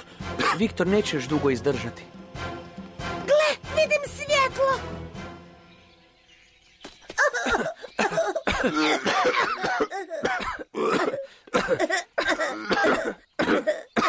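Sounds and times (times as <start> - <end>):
cartoon characters coughing: 0.4 - 0.7, 7.2 - 14.0.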